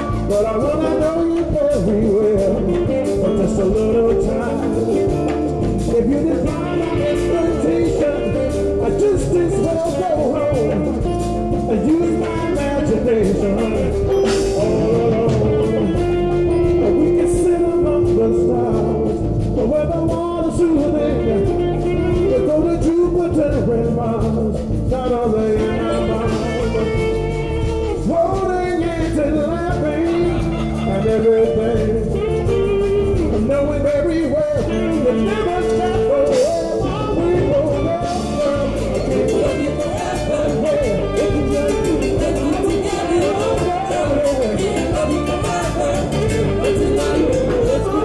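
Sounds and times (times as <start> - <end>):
live latin band playing: 0.0 - 48.0
maracas shaking: 22.2 - 48.0.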